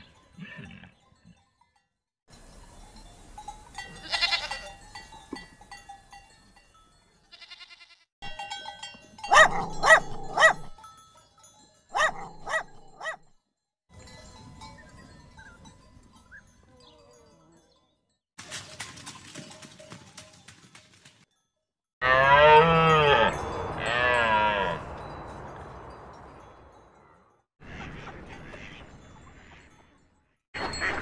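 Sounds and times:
goats bleating: 4.0 - 4.7, 7.3 - 8.0.

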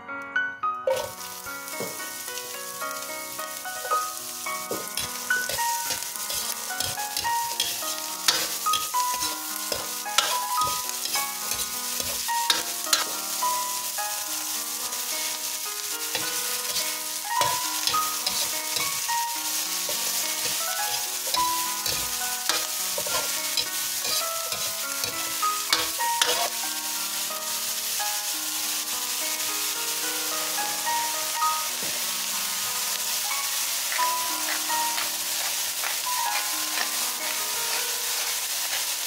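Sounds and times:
background music: 0.0 - 38.4
vegetables sizzling in a wok: 0.8 - 39.0
metal ladle scraping wok: 0.9 - 2.5, 3.5 - 13.7, 16.1 - 26.5.

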